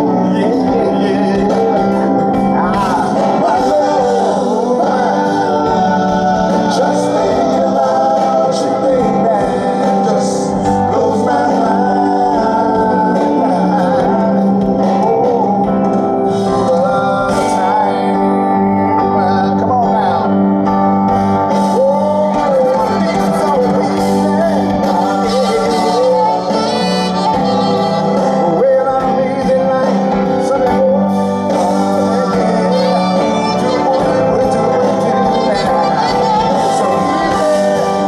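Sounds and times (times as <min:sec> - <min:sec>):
live band playing sustained chords: 0:00.0 - 0:38.0
person singing wavering melody: 0:21.6 - 0:38.0.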